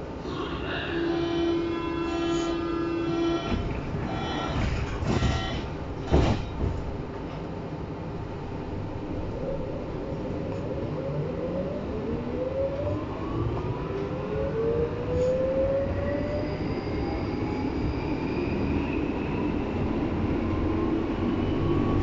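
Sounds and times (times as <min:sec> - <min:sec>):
wheels rumbling on rail: 0:00.1 - 0:22.0
train traction motors whining: 0:00.5 - 0:05.8.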